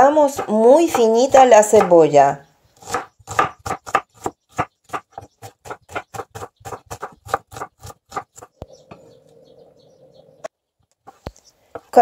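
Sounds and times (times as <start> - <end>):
knife chopping on cutting board: 0.0 - 1.9, 2.8 - 8.5.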